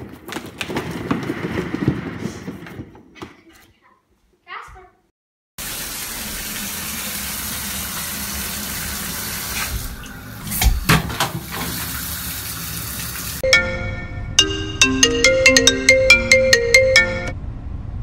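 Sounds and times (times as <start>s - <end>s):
water gushing into bathtub: 5.6s - 13.4s.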